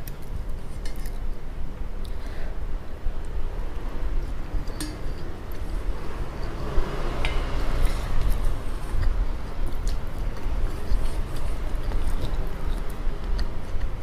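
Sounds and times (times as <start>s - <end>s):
utensils stirring in steel bowl: 4.3s - 14.0s
chewing: 7.8s - 13.9s.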